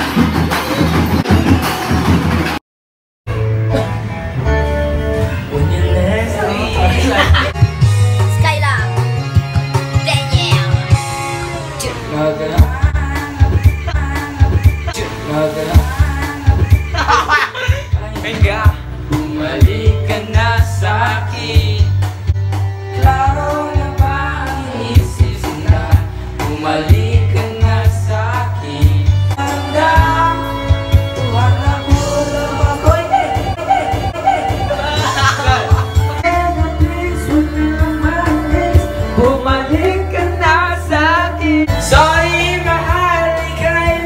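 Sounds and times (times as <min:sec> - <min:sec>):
backing track with bass beat: 0:00.0 - 0:02.6, 0:03.3 - 0:44.0
man singing into a microphone: 0:05.4 - 0:07.5, 0:11.4 - 0:22.3, 0:22.9 - 0:44.0.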